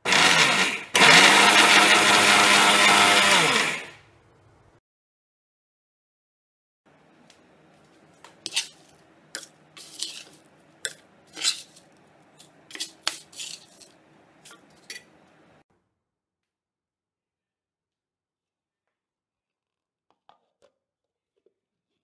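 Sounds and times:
spatula scraping a steel pan: 0:08.4 - 0:15.2.

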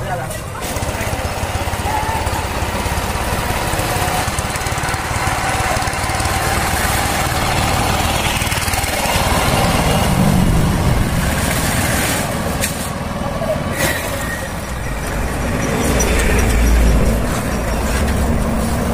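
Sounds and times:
motor vehicle engines running: 0:00.0 - 0:18.9
motorcycle passing: 0:00.7 - 0:12.4.

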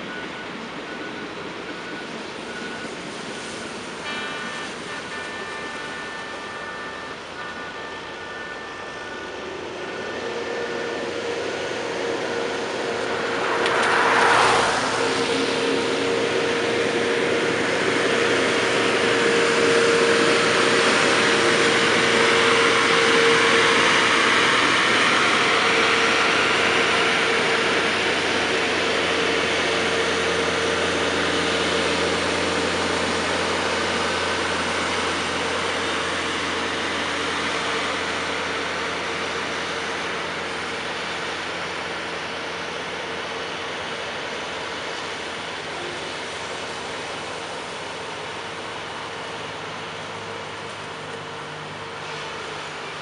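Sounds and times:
diesel engines running: 0:00.0 - 0:53.0
wheels rumbling on rail: 0:00.0 - 0:53.0
steady tone: 0:04.1 - 0:28.2.

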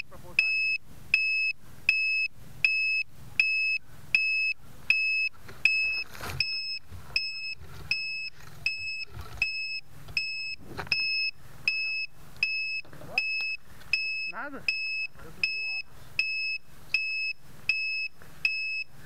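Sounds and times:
rustling and knocking in leaves: 0:05.3 - 0:09.4.

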